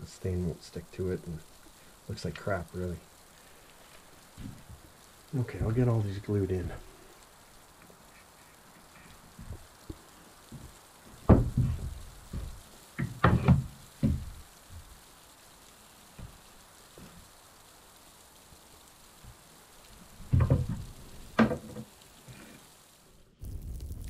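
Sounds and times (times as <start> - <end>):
wooden knocks and thumps: 4.4 - 4.8, 9.4 - 14.9, 20.2 - 21.9.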